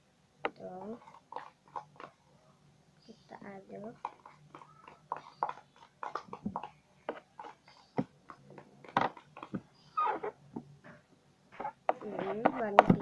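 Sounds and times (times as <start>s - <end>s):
spoon stirring sticky slime: 0.5s - 2.2s, 3.2s - 10.4s, 11.5s - 13.0s.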